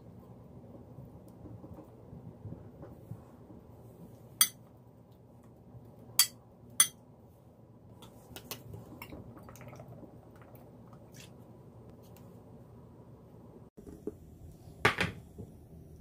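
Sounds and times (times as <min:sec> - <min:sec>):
kitchenware clinking: 0:06.2 - 0:07.0.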